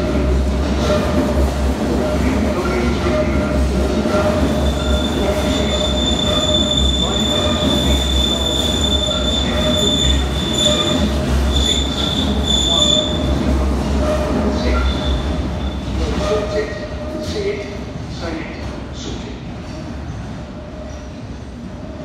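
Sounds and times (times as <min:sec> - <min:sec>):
train wheels rumbling: 0:00.0 - 0:22.0
high wheel squeal: 0:04.3 - 0:13.3, 0:14.0 - 0:16.0.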